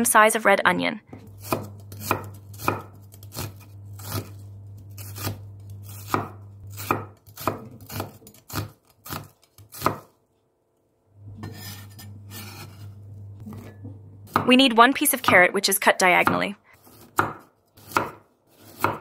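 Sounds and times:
knife chopping onion on wooden board: 1.1 - 10.2, 13.5 - 15.5, 16.2 - 19.0.

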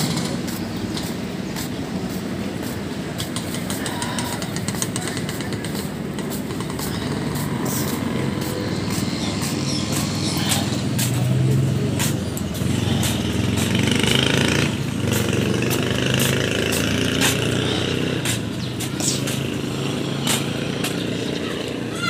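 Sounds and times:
motorcycle engine running: 0.0 - 1.3, 3.2 - 21.8
sharp clicks and taps: 0.1 - 14.2, 15.0 - 17.6, 18.2 - 19.6, 20.2 - 21.2.

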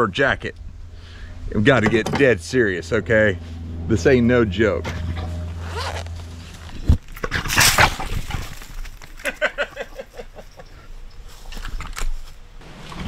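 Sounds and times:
dry brush crackling: 5.3 - 9.5.

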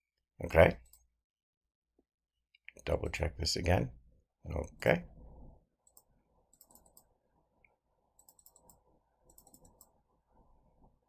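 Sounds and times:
computer mouse clicks: 5.9 - 10.0.

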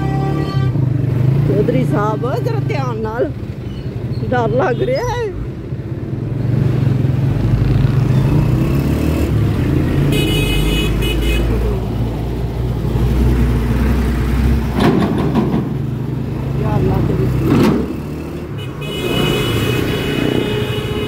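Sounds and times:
heavy vehicles engine rumble: 0.0 - 21.0
knocking or rustling: 14.7 - 15.8.

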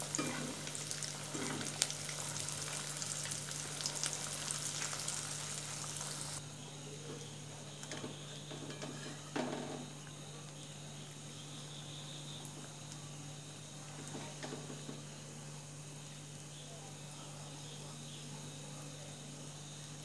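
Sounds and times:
food sizzling in hot oil: 0.0 - 6.4.

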